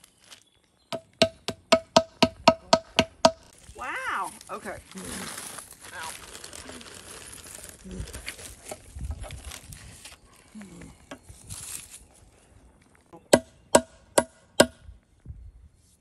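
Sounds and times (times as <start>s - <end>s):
hammer blows on rocks: 0.9s - 3.5s
plastic bag rustling: 3.6s - 12.4s.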